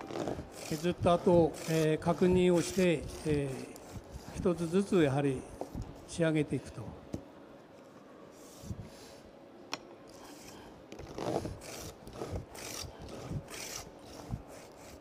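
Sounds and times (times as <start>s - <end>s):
hand plane shaving wood: 0.0s - 4.9s, 11.1s - 15.0s.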